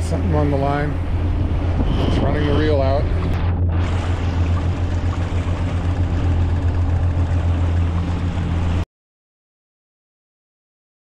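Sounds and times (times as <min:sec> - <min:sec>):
rushing water: 0:00.0 - 0:08.8
steady low hum: 0:00.0 - 0:08.8
wind: 0:00.0 - 0:08.9.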